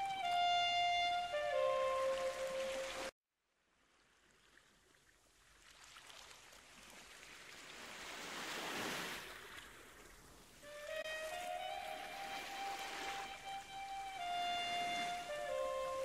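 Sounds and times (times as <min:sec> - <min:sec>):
background music with flute: 0:00.0 - 0:03.1, 0:10.6 - 0:16.0
sea waves on rocky shore: 0:05.4 - 0:16.0.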